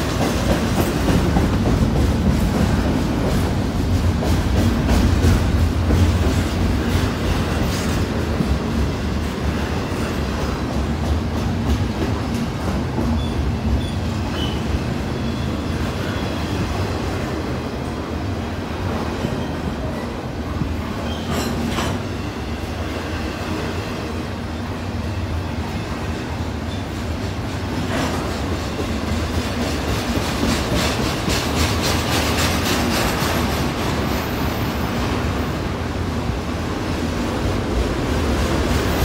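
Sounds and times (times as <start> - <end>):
train wheels rumbling on rail: 0.0 - 39.0
clatter over rail joints: 21.0 - 22.1.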